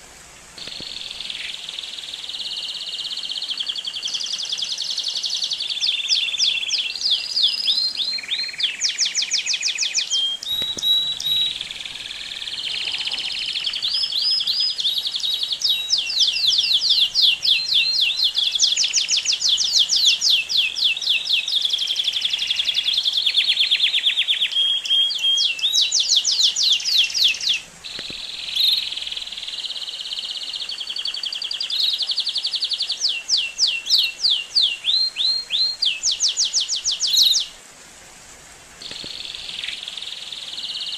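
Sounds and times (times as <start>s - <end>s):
canary singing trills: 0.6s - 37.5s, 38.8s - 40.9s.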